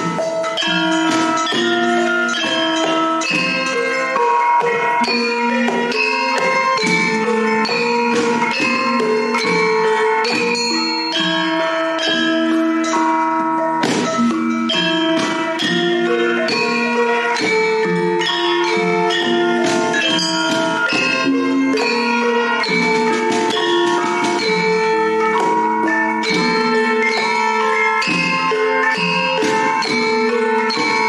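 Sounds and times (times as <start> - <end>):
mallet percussion music: 0.0 - 31.0.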